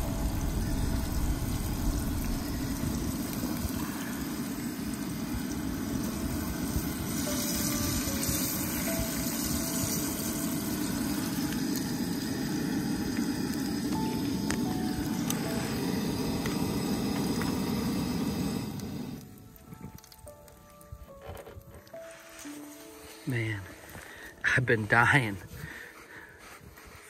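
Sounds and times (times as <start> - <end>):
oil sizzling in a frying pan: 0.0 - 19.2.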